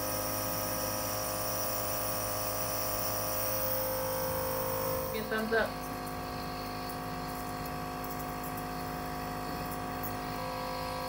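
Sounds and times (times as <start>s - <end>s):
nebulizer compressor humming: 0.0s - 11.0s.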